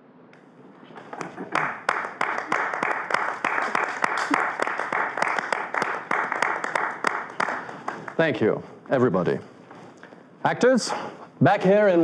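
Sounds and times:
people clapping: 1.0 - 8.6.

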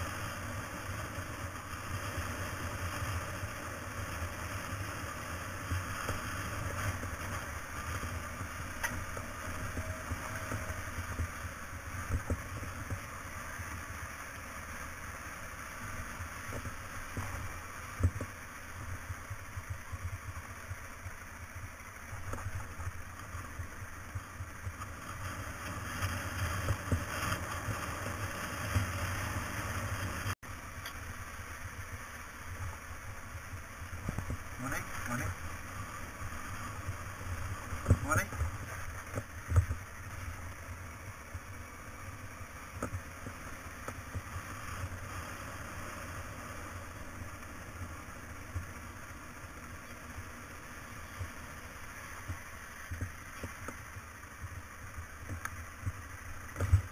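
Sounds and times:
motorcycle engine running: 0.0 - 56.9.

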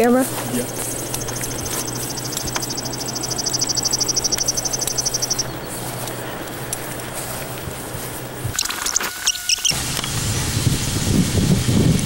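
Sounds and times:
rapid high-pitched chirping trill: 0.0 - 6.0, 8.5 - 9.8
steady low hum: 0.0 - 12.0.

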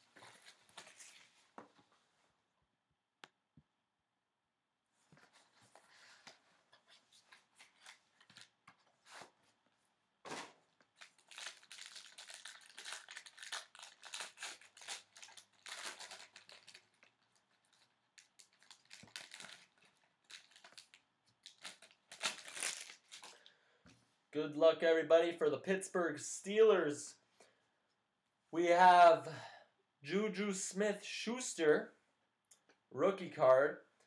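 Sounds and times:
wrapper tearing and crinkling: 10.9 - 23.4.

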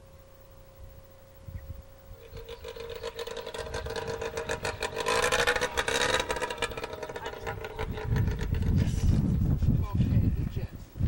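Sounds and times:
aircraft engine running: 2.0 - 9.4.

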